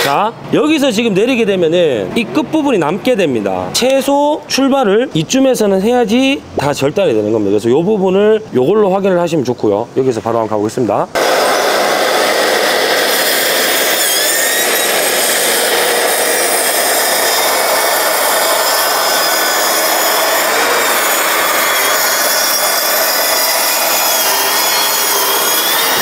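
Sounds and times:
plunge saw cutting wood panel: 0:11.2 - 0:26.0.

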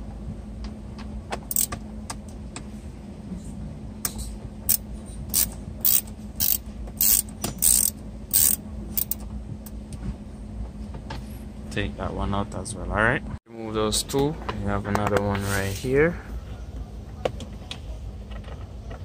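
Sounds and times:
steady low hum: 0:00.0 - 0:19.0
hand ratchet clicking: 0:01.5 - 0:01.8, 0:04.7 - 0:09.2.

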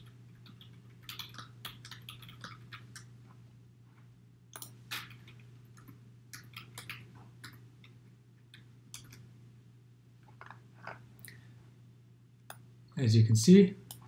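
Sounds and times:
keyboard keys clicking: 0:00.0 - 0:03.1
low electrical hum: 0:00.0 - 0:14.0.

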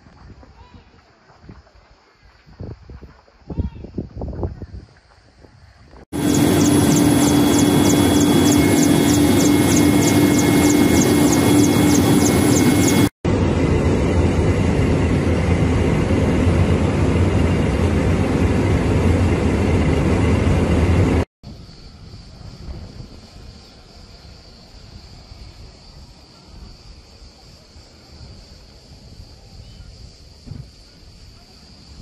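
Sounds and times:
plane engines droning in cabin: 0:06.2 - 0:24.7.

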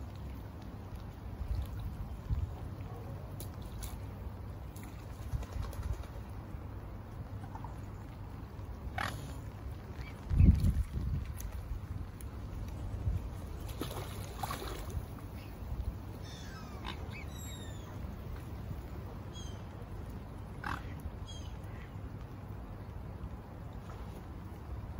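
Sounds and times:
waterfowl calling: 0:16.2 - 0:18.0, 0:20.5 - 0:22.0.

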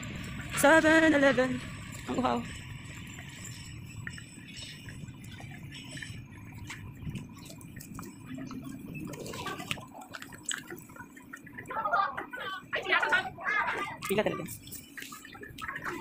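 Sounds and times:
steady low street rumble: 0:00.0 - 0:16.0.

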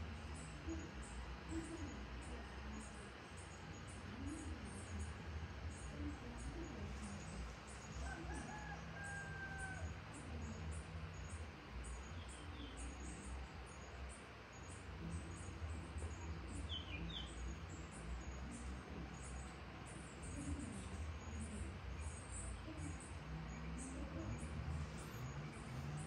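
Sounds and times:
rooster crowing: 0:08.0 - 0:10.0
steady low hum: 0:09.8 - 0:26.0.

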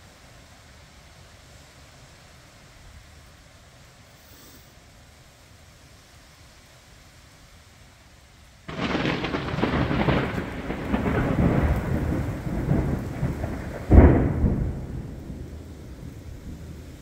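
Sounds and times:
rain hissing: 0:00.0 - 0:17.0
thunder crackling and rumbling: 0:08.7 - 0:17.0.

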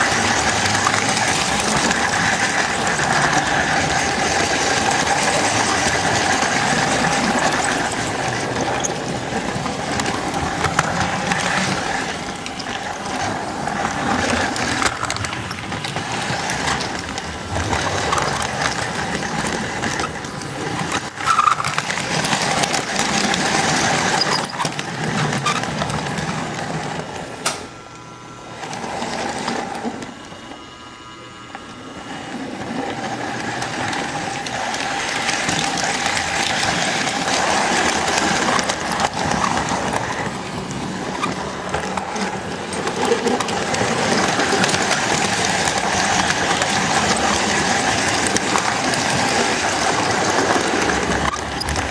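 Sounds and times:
wheel rumble: 0:00.0 - 0:27.4, 0:32.1 - 0:51.9
model train motor running: 0:00.0 - 0:51.9
clicks over rail joints: 0:33.4 - 0:51.9.

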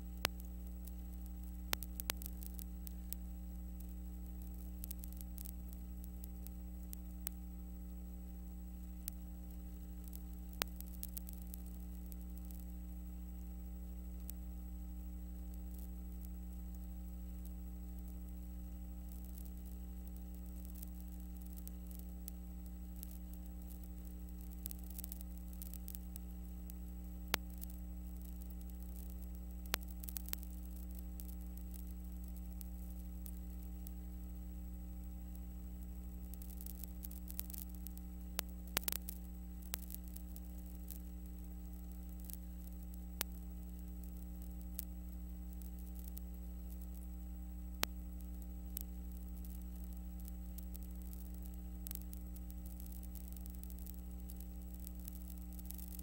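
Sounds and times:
electrical hum: 0:00.0 - 0:56.0
faint hiss: 0:00.0 - 0:56.0
sharp clicks: 0:00.2 - 0:07.4, 0:35.0 - 0:47.1.

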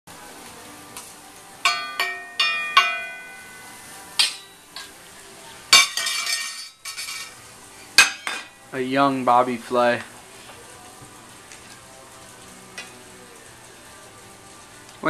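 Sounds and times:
toy pots and pans clanging: 0:05.8 - 0:07.4.

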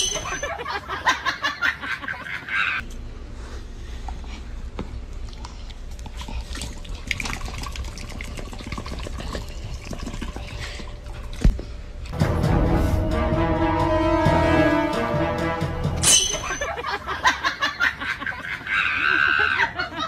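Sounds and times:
music: 0:12.1 - 0:16.6.

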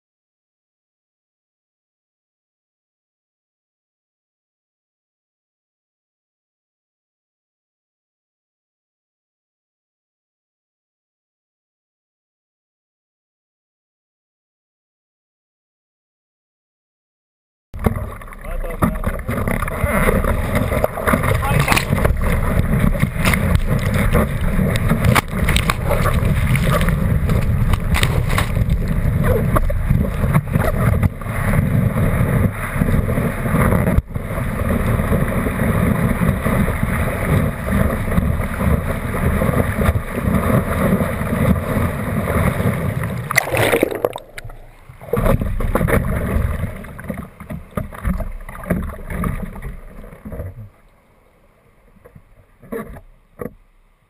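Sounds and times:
water lapping: 0:17.8 - 0:53.6
whitewater rushing over surfboard: 0:17.8 - 0:53.7.

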